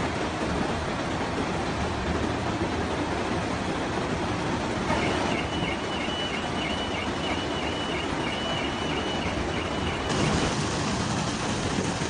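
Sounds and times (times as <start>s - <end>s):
floodwater rushing: 0.0s - 12.0s
quick regular beeping: 4.9s - 10.5s.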